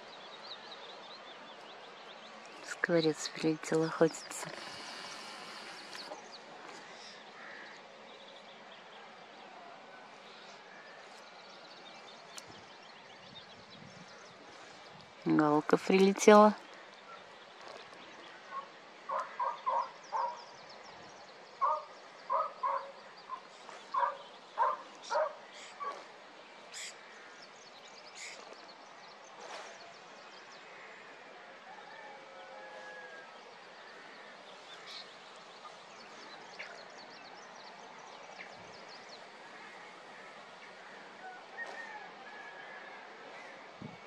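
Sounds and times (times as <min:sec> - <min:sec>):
small birds chirping: 0:00.0 - 0:08.9, 0:15.6 - 0:26.1
steady background hiss: 0:00.0 - 0:44.0.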